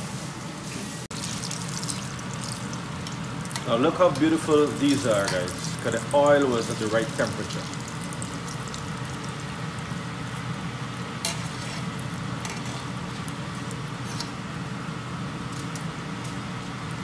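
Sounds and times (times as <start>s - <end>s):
oil sizzling and bubbling: 0.0s - 17.0s.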